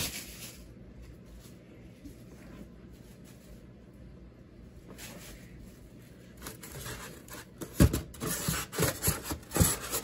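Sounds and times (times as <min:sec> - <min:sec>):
cardboard and foam rustling: 0:00.0 - 0:04.0, 0:04.8 - 0:10.0
rubbing and scraping: 0:04.9 - 0:10.0.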